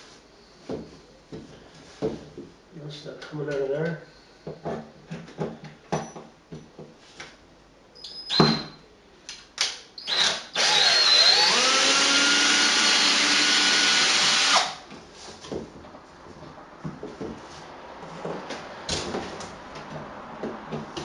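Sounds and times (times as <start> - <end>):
power drill motor whine: 10.0 - 14.8.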